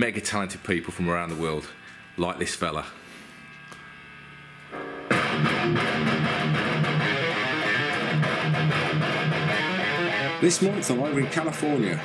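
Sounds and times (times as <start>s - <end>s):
amplifier hum: 0.0s - 12.0s
electric guitar riffing: 4.7s - 12.0s.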